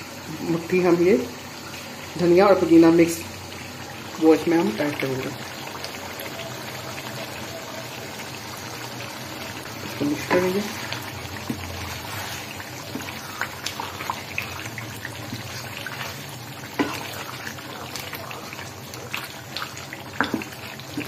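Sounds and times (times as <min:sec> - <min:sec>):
thick curry bubbling: 0:04.8 - 0:21.0
spoon scraping a pan: 0:10.0 - 0:14.2, 0:15.2 - 0:18.0.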